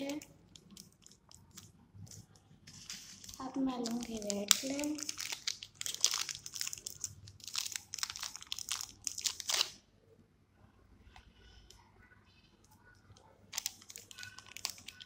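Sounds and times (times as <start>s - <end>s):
plastic bag crinkling: 0.0s - 9.8s, 13.5s - 15.0s.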